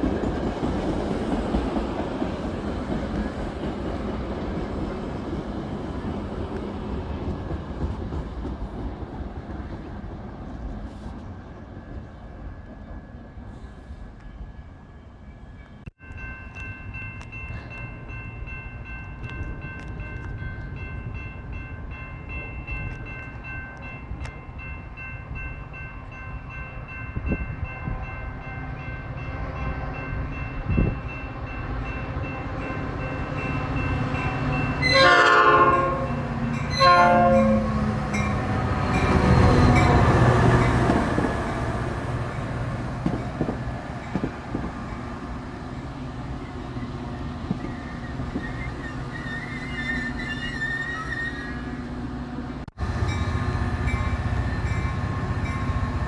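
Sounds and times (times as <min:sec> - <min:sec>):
train wheels rumbling on rails: 0:00.0 - 0:14.5, 0:29.1 - 0:56.0
train horn blasts: 0:34.8 - 0:38.6.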